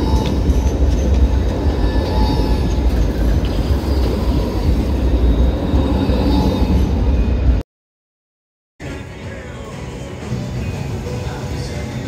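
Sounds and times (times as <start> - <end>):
faint high whines: 0.0 - 7.6
tram rumbling past: 0.0 - 7.6.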